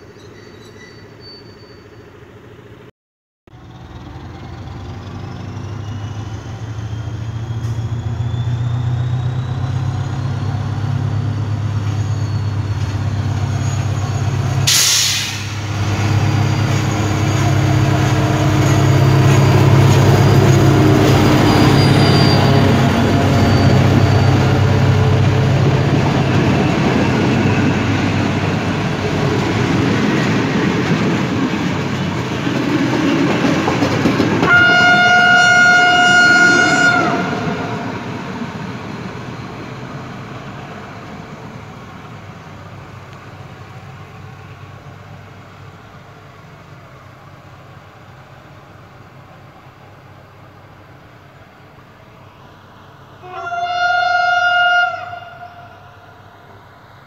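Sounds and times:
diesel locomotive engine drone: 0:00.0 - 0:02.9, 0:03.5 - 0:57.0
burst of hiss: 0:14.7 - 0:15.7
train wheels clattering over rail joints: 0:30.0 - 0:34.7.

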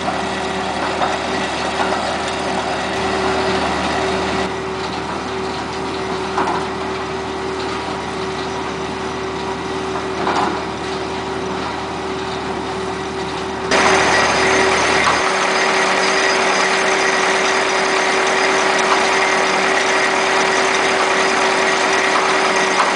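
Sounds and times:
machine engine humming: 0:11.7 - 0:22.9.

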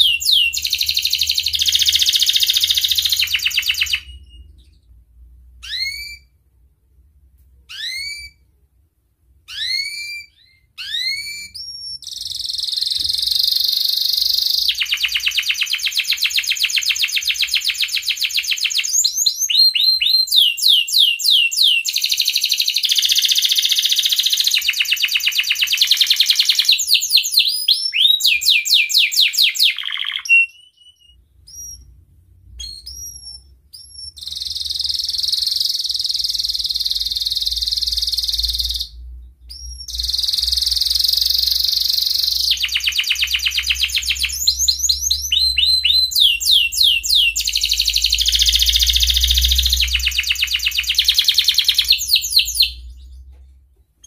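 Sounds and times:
canary singing trills: 0:00.0 - 0:05.0, 0:05.6 - 0:06.4, 0:07.7 - 0:08.5, 0:09.5 - 0:32.0, 0:32.6 - 0:53.3.

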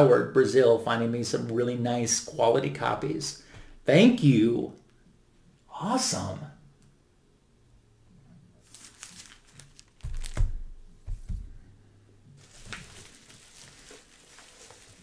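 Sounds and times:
plastic sleeves crinkling: 0:08.6 - 0:11.5, 0:12.4 - 0:15.0
dull thumps: 0:10.0 - 0:11.7.

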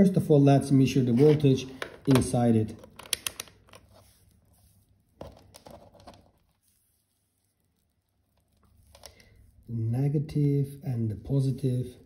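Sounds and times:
rustling: 0:02.8 - 0:09.8.

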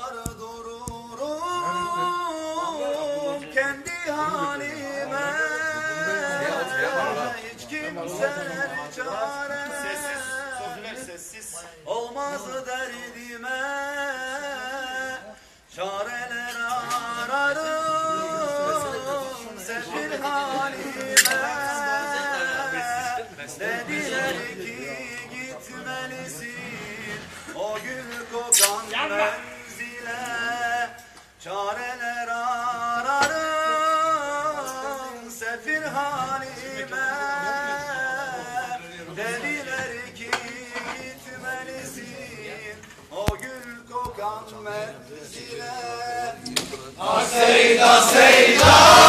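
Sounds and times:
man singing unaccompanied: 0:00.0 - 0:49.0.

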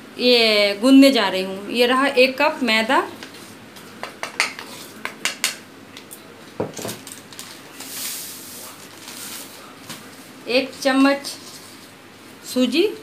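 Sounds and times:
flour scraped from bowl: 0:07.8 - 0:09.7.

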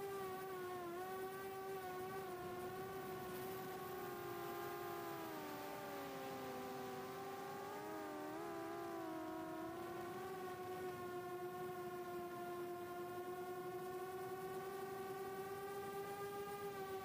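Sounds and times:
quadcopter motors whining: 0:00.0 - 0:17.0.

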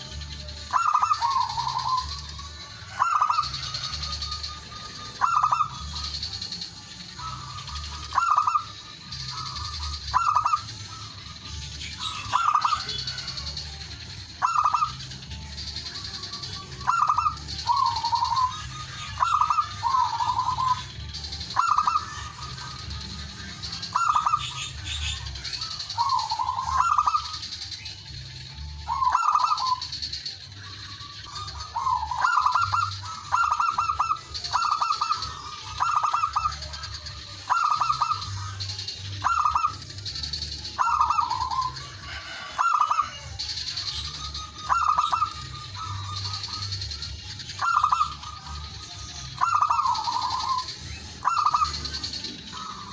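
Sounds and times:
dove cooing: 0:00.0 - 0:27.8, 0:28.6 - 0:52.9.

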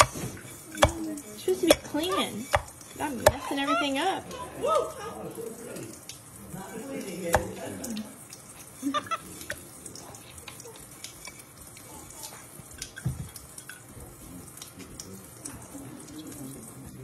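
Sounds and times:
water trickling into steel tumbler: 0:00.0 - 0:17.0.

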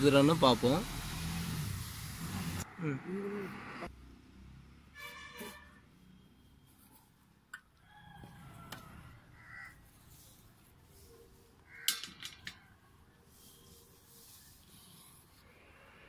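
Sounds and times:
faint bird calls: 0:09.4 - 0:09.9.

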